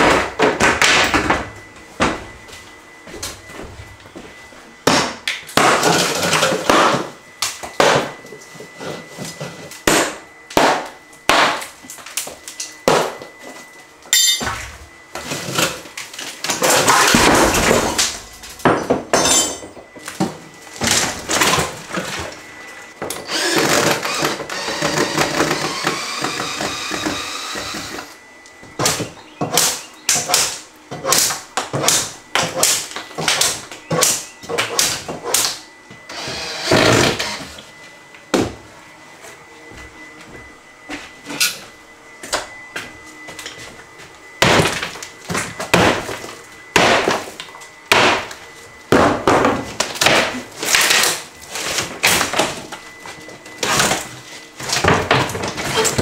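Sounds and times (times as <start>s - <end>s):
wood knocks bangs and cracks: 4.8s - 7.1s, 16.4s - 19.4s, 44.4s - 47.3s, 47.9s - 48.3s, 48.9s - 51.2s, 54.7s - 56.0s.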